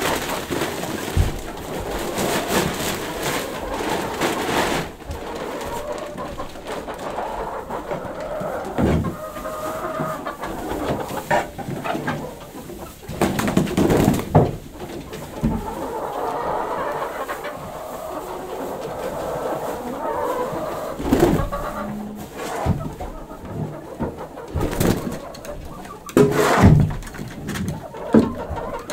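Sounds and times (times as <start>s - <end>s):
hens clucking: 0.0s - 28.9s
knocks and scrapes: 19.8s - 28.9s.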